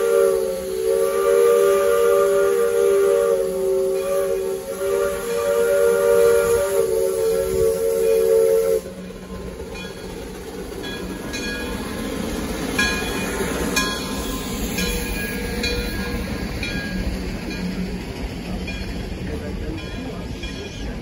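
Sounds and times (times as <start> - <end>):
steam locomotive whistle: 0.0 - 9.3
train rolling past rumble: 0.0 - 21.0.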